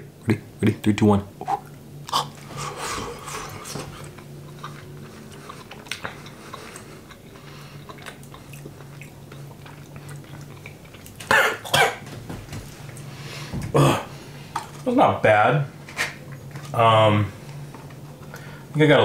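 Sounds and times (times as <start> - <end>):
steady low hum: 0.0 - 19.0
man chewing food: 1.4 - 14.9, 15.8 - 16.8, 17.4 - 18.8
man coughing: 11.3 - 12.1, 13.7 - 14.1.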